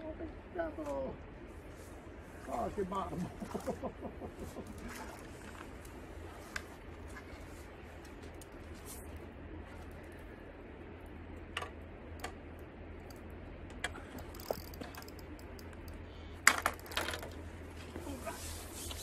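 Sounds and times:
fishing tackle clicking: 13.0 - 17.3.

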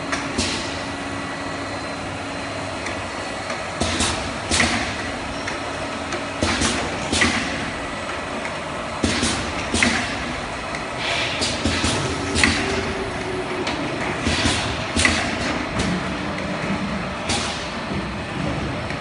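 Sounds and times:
machine hum: 0.0 - 19.0
sharp pneumatic hissing bursts: 11.0 - 12.7.

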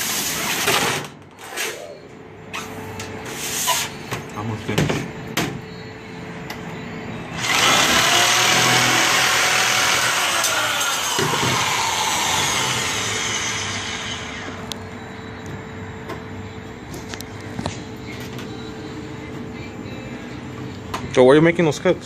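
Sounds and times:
electric shear cutting sheet metal: 7.4 - 14.6.

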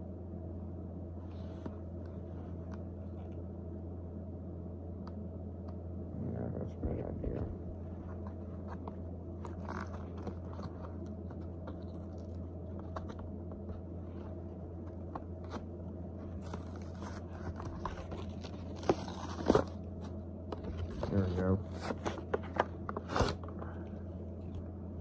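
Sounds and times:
plastic packaging crinkling: 8.1 - 15.6, 16.2 - 23.5.

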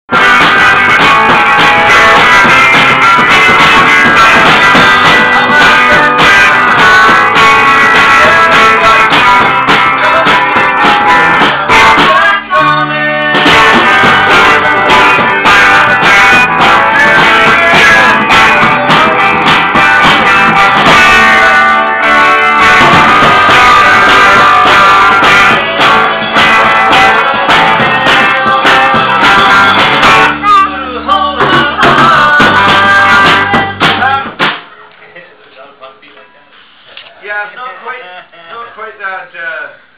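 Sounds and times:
loud music with guitar and singing: 0.1 - 34.8.

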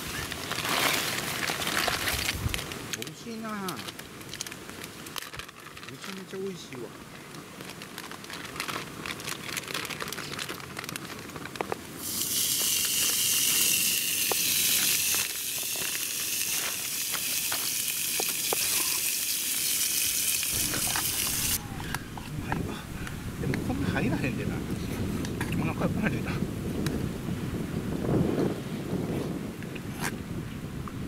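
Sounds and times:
light crackling: 0.1 - 25.7
steak sizzling on grill plate: 12.0 - 21.6.

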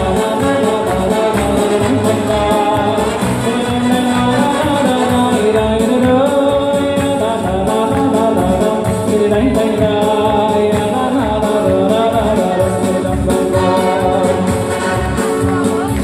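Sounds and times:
person singing: 0.0 - 16.0
wedding band playing dance tune: 0.0 - 16.0.

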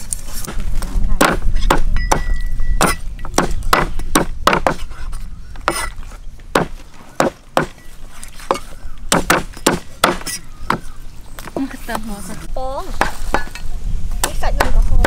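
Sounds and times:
cleavers chopping on wooden blocks: 0.4 - 7.8, 8.4 - 11.7.

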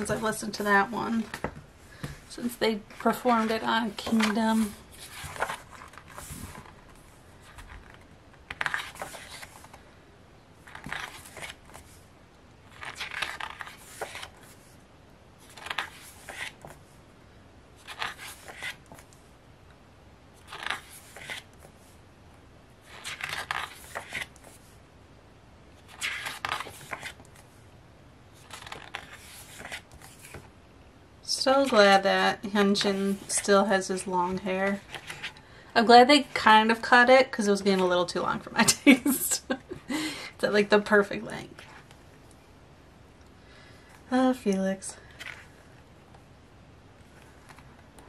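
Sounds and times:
pages turning: 0.0 - 9.8, 10.6 - 12.0, 12.6 - 14.8, 15.4 - 16.9, 17.8 - 19.2, 20.4 - 22.0, 22.8 - 24.8, 25.8 - 27.6, 28.4 - 30.5, 34.6 - 35.4, 45.1 - 45.5, 47.0 - 48.0.

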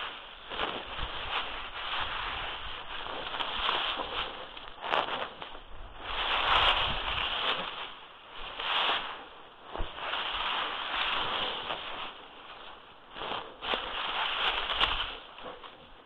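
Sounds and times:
dry leaves rustling: 0.0 - 16.0
jacket sleeves swishing: 0.0 - 16.0.

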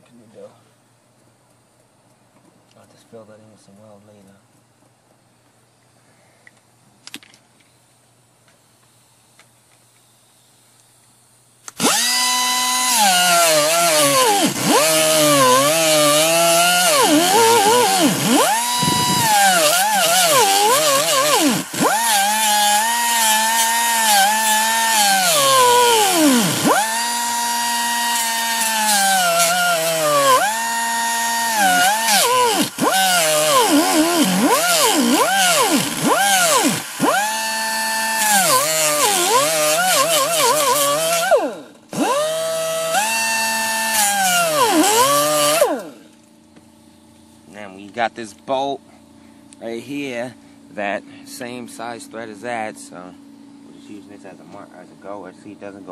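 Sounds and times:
grinder cutting sheet metal: 11.8 - 46.1.

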